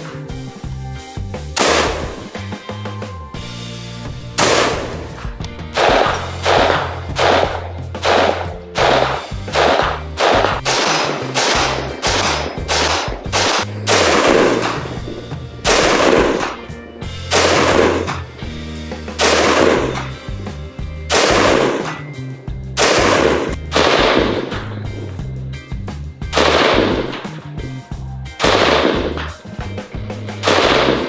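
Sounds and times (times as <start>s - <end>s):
background music with bass line: 0.0s - 31.0s
rifle shots: 1.6s - 2.4s, 4.4s - 18.3s, 19.2s - 20.2s, 21.1s - 22.1s, 22.8s - 24.8s, 26.3s - 27.3s, 28.4s - 29.4s, 30.4s - 31.0s.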